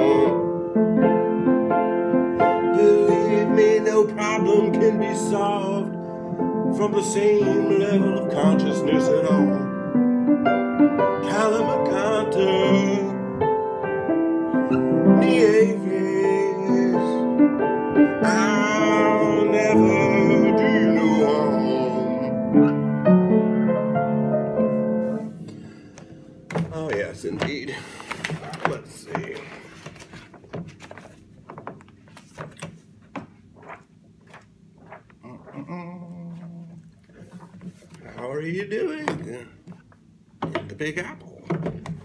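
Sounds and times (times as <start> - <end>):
piano chords: 0.0 - 29.4
person singing drawn-out notes: 18.2 - 22.6, 35.2 - 36.9
sheet music paper rustling: 26.5 - 39.9.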